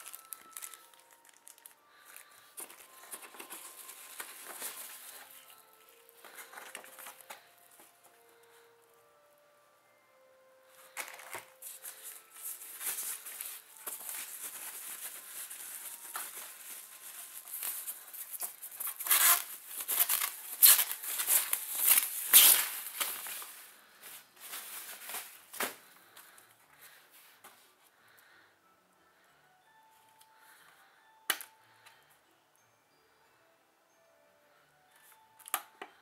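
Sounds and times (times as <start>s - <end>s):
plastic sleeve crinkling: 0.0s - 7.6s, 10.9s - 25.8s.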